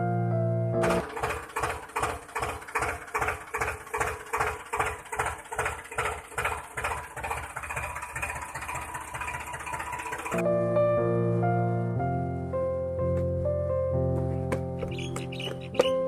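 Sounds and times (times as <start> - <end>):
tractor diesel engine idling: 0.8 - 10.4, 14.3 - 16.0.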